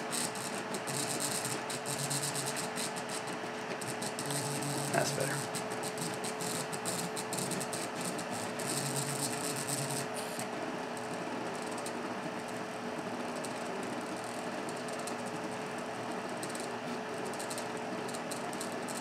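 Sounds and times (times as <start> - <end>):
steady hum: 4.5 - 5.5.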